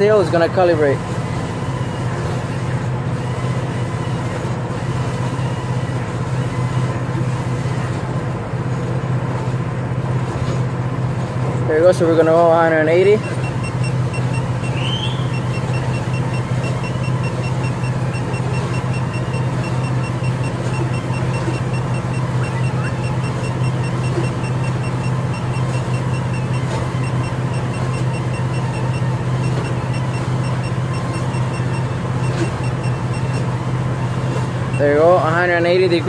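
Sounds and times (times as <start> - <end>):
rapid beeping from torque wrench: 12.8 - 33.6, 34.7 - 35.5.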